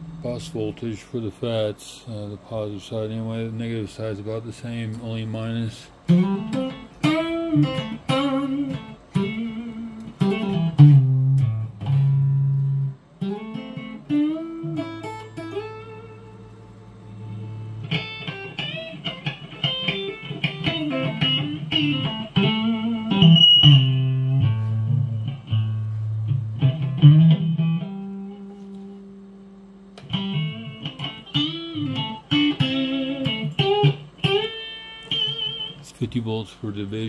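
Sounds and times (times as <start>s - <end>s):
electric guitar plucked notes: 5.9s - 35.9s.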